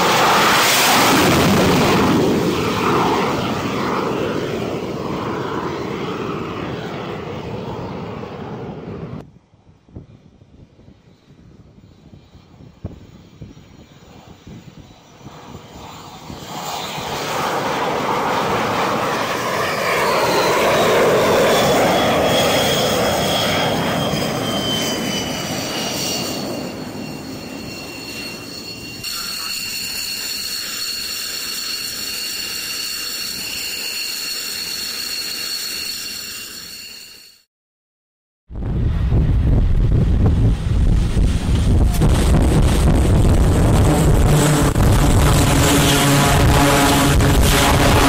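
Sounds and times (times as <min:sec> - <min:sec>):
steady high whine: 0:00.0 - 0:37.4, 0:38.6 - 0:48.0
jet engine whine: 0:00.0 - 0:37.5, 0:38.6 - 0:48.0.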